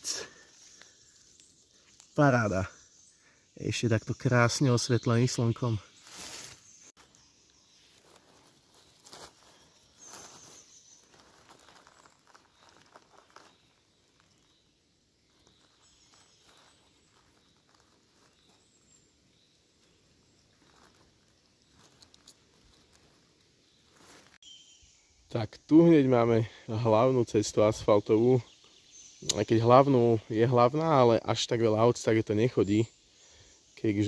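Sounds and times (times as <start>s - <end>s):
footsteps rustling through leaves: 5.9s - 14.6s, 15.2s - 19.1s, 19.7s - 24.4s.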